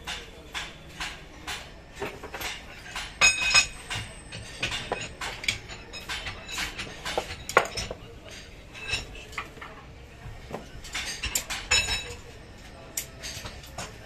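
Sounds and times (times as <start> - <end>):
ringing metal strikes: 0.0 - 7.9
metallic clinks and scrapes: 2.0 - 9.6.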